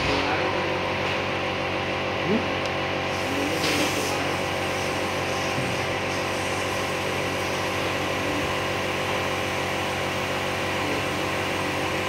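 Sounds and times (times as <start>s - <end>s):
steady mechanical hum: 0.0s - 12.0s
hiss: 3.1s - 9.6s.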